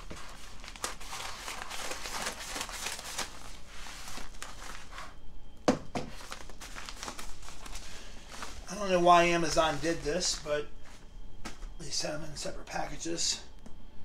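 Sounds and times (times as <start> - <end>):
scissors cutting bubble mailer: 0.0 - 3.5
mailer rustling: 0.0 - 5.2, 5.9 - 11.8.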